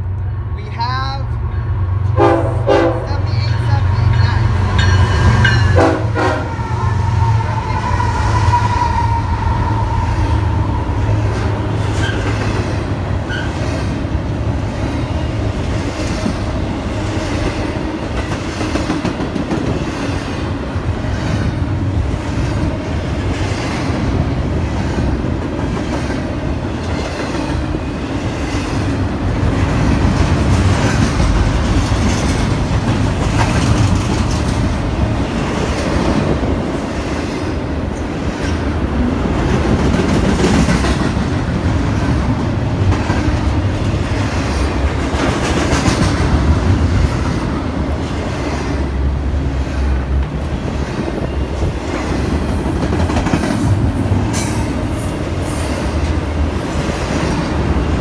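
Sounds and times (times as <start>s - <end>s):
freight train cars rolling: 0.0s - 58.0s.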